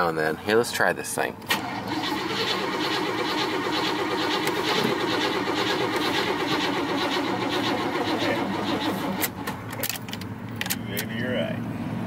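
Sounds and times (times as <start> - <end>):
starter cranking engine: 1.5 - 9.9.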